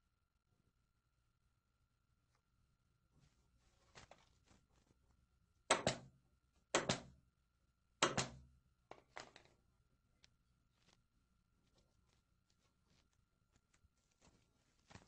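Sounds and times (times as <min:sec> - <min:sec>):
staple gun firing into wood: 0:08.0 - 0:08.4.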